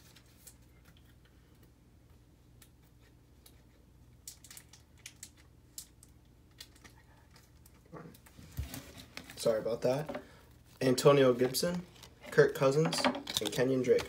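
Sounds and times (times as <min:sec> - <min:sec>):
faint low room hum: 0:00.0 - 0:14.0
trading cards and foil packs clicking: 0:11.4 - 0:14.0.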